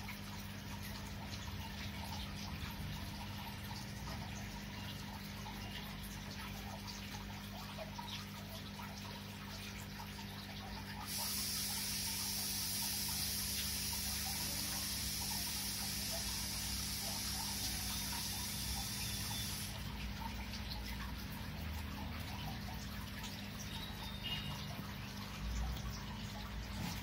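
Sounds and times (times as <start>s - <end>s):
aquarium water bubbling: 0.0s - 27.0s
bright hiss: 11.1s - 19.7s.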